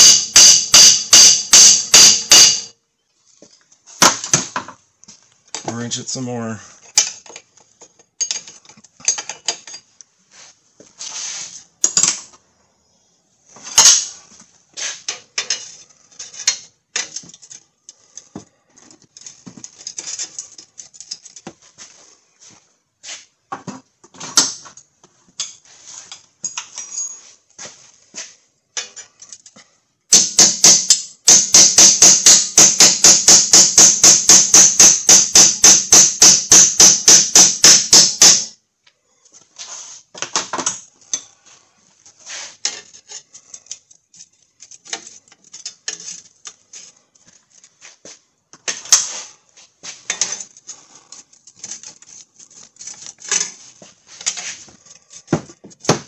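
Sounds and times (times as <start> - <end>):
hammer blows on steel: 0.0 - 2.7
hand tools clinking on metal: 0.0 - 2.8, 6.8 - 10.0, 15.0 - 21.5, 25.4 - 27.4, 28.7 - 29.7.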